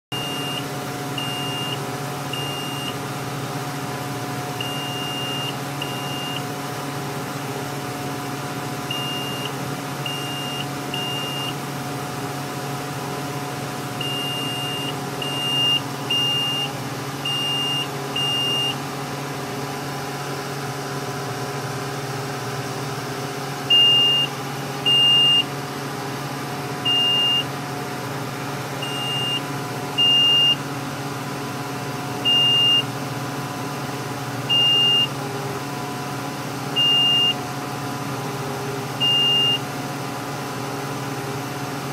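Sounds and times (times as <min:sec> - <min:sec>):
short high-pitched alarm beeps: 0:00.1 - 0:03.0, 0:04.6 - 0:06.5, 0:08.9 - 0:11.6, 0:14.0 - 0:18.8, 0:23.7 - 0:25.5, 0:26.8 - 0:27.5, 0:28.8 - 0:29.4, 0:30.0 - 0:30.6, 0:32.2 - 0:32.9, 0:34.5 - 0:35.1, 0:36.8 - 0:37.4, 0:39.0 - 0:39.6
steady low hum: 0:00.2 - 0:20.2.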